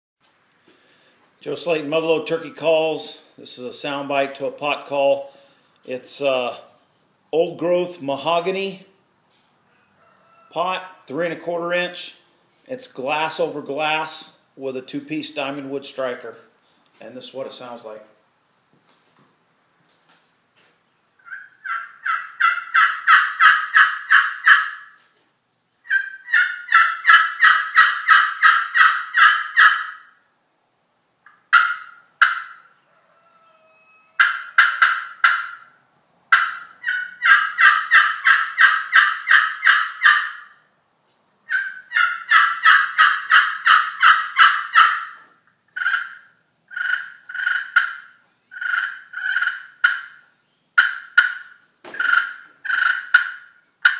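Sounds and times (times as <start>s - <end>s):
turkey pot call yelps: 21.2s - 25.0s, 25.8s - 30.2s, 31.3s - 40.6s, 41.5s - 53.9s.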